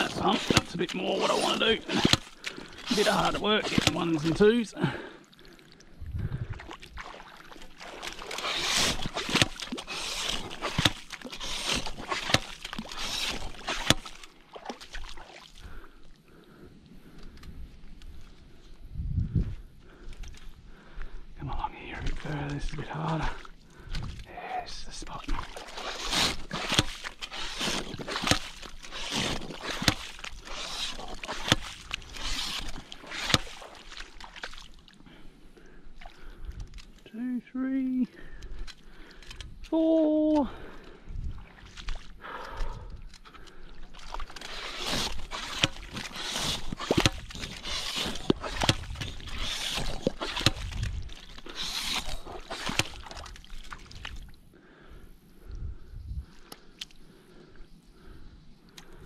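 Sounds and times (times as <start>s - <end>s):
pump squelching wet sand: 0.0s - 4.7s, 7.1s - 15.4s, 25.1s - 34.8s, 43.9s - 54.1s.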